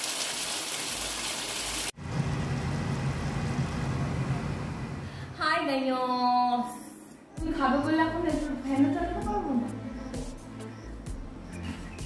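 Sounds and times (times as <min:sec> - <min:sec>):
fish sizzling in hot oil: 0:00.0 - 0:01.9.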